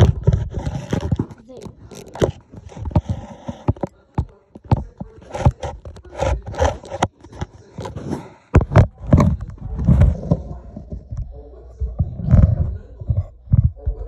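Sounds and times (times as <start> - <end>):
objects scraping on wooden table: 0.0 - 11.2.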